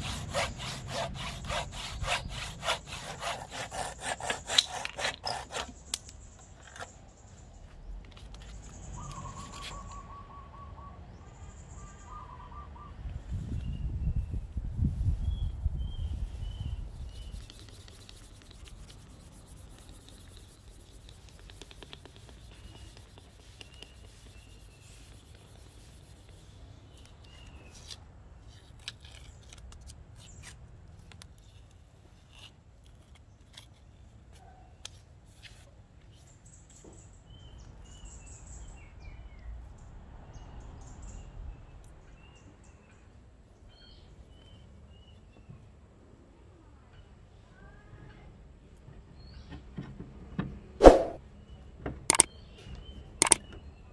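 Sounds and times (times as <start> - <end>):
sandpaper rubbing on wood: 0.0 - 5.7, 16.2 - 26.6
small birds chirping: 5.3 - 27.9.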